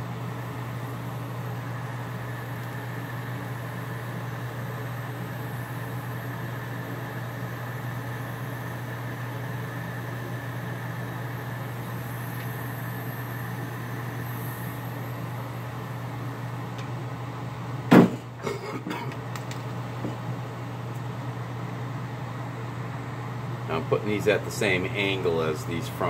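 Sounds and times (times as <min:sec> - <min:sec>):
gas torch hissing: 0:00.0 - 0:16.5.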